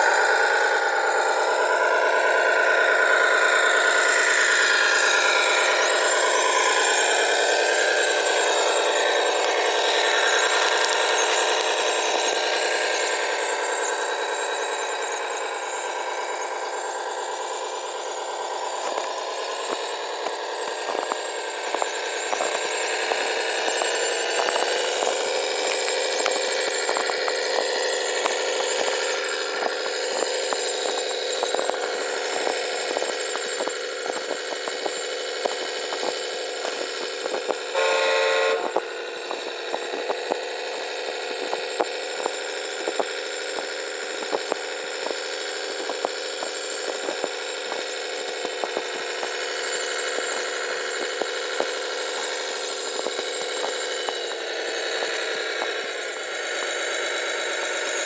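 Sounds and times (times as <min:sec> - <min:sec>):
scattered ticks: 0:00.0 - 0:58.0
toy truck drivetrain whine: 0:00.0 - 0:58.0
short horn tone: 0:37.8 - 0:38.7.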